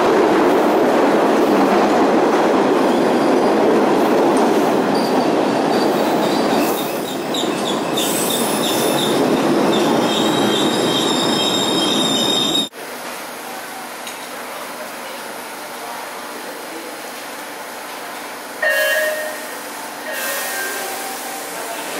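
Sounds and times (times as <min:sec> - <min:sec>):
subway train rumbling: 0:00.0 - 0:21.9
high-pitched wheel squeal: 0:06.7 - 0:12.7.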